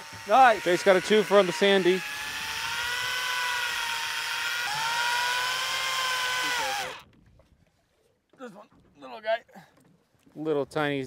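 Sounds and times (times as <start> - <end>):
fishing reel motor whining: 0.0 - 7.1.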